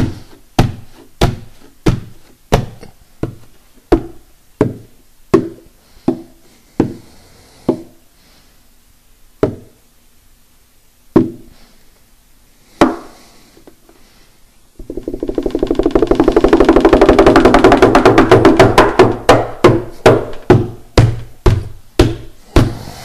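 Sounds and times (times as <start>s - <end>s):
knocks on wooden guitar body: 14.8s - 22.7s.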